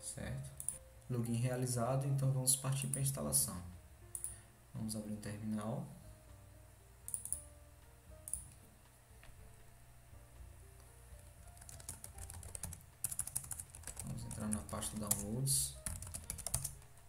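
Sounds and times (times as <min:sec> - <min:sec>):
typing on computer keyboard: 0:07.1 - 0:07.4, 0:11.4 - 0:16.8.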